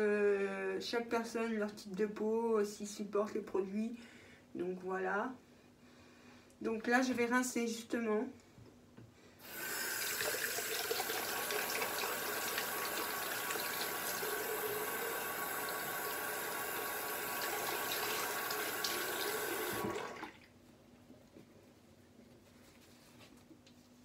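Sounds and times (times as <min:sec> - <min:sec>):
sink tap running: 0:09.4 - 0:20.2.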